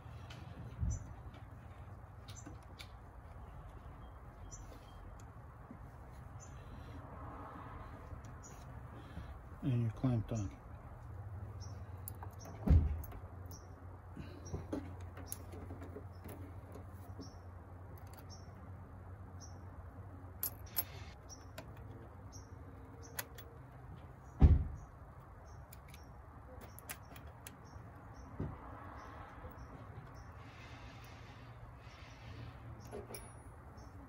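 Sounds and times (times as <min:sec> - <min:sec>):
dull thump: 0:12.6 - 0:13.2, 0:24.4 - 0:24.8.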